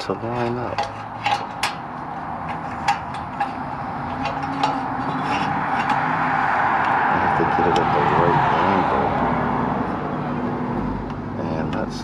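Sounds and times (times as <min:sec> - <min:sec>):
light metallic clicks and taps: 0:00.7 - 0:01.8.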